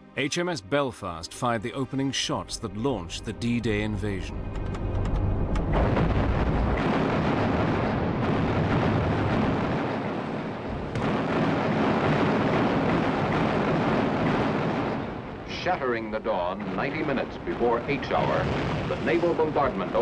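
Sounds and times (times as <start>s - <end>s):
long rolling rumble: 3.9s - 20.0s
heavy guns firing: 5.8s - 15.4s.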